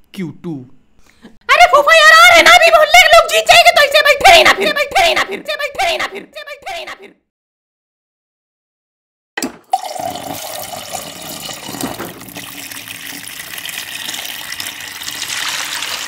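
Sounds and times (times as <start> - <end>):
tap water running into bucket: 9.4 - 16.0.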